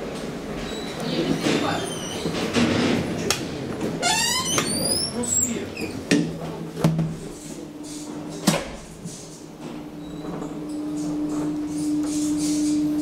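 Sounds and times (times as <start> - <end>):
elevator doors squeaking: 0.6 - 2.5, 4.0 - 6.0, 9.9 - 11.2.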